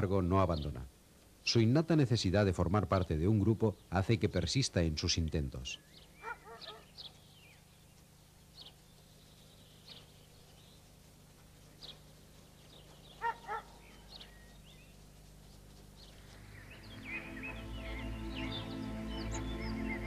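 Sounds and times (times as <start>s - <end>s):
dog barking: 6.2s - 6.9s, 13.2s - 13.8s
soft music: 16.2s - 20.0s.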